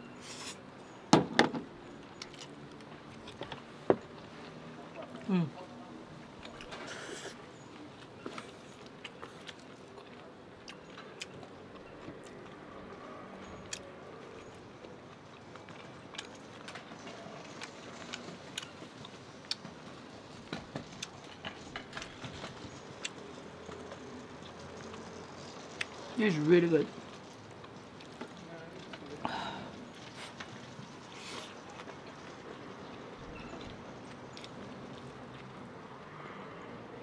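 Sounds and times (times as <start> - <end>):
person chewing noodles: 8.0 - 16.7.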